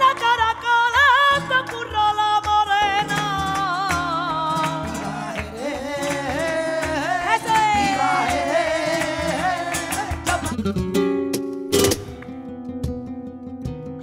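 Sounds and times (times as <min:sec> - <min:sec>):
woman singing: 0:00.0 - 0:10.6
rhythmic hand-clapping: 0:00.0 - 0:13.1
flamenco guitar: 0:00.0 - 0:14.0.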